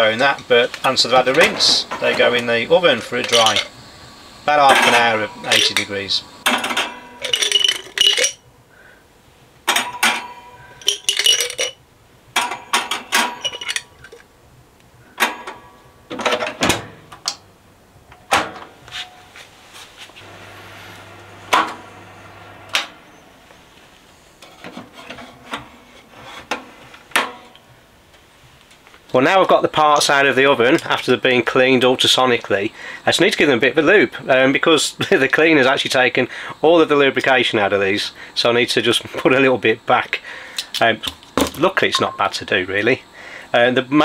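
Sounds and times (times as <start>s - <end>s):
metal parts clinking on wire rack: 1.3s - 3.7s, 4.7s - 5.9s, 6.5s - 8.4s, 9.7s - 11.8s, 12.4s - 14.2s.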